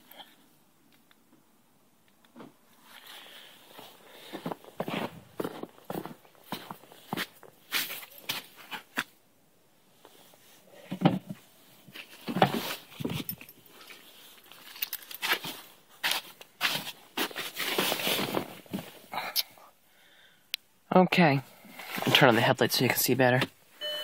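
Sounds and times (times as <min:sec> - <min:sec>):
footsteps in snow: 0:02.8 - 0:08.9
handling knocks and rustles: 0:10.8 - 0:19.1.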